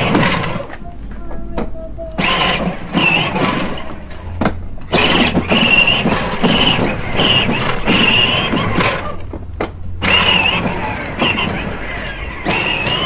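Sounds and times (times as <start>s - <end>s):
electric drive whine: 0.0s - 13.0s
toy car wheels rumbling and rattling: 0.0s - 13.0s
wheels knocking over paver joints: 0.0s - 13.0s.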